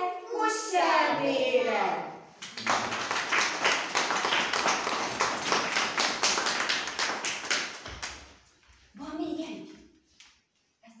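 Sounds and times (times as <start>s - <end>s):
audience clapping: 2.3s - 8.5s.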